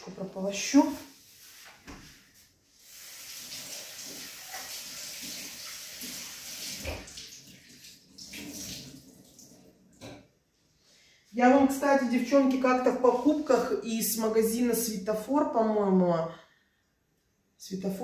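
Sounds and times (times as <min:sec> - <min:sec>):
tap water running into steel sink: 0:03.0 - 0:10.2.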